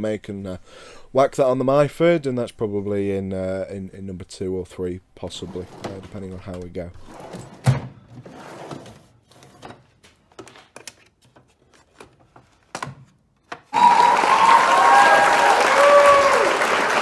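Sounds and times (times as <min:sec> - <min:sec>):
loud applause: 0:13.7 - 0:17.0.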